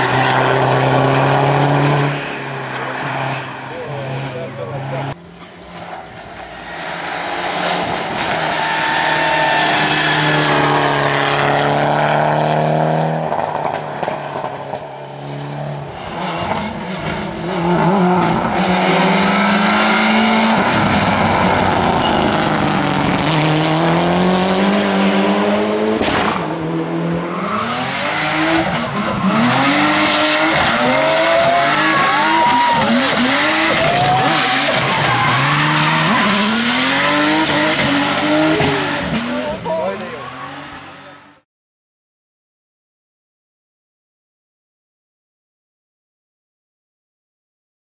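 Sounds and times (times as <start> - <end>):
rally car engine revving: 0.0 - 41.4
sharp engine pop: 26.0 - 26.5.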